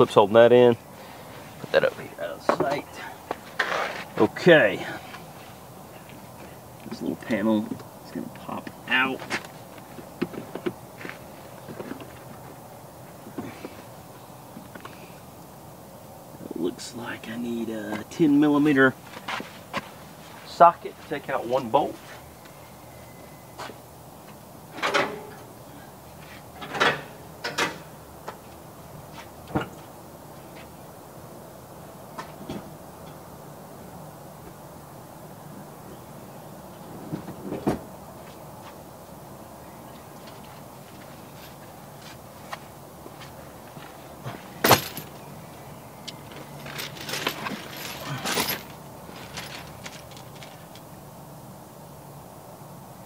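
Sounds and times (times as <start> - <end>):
tool bag rustling and clunking: 40.2 - 45.3, 46.1 - 50.8
metal hand tools clinking: 46.1 - 50.6.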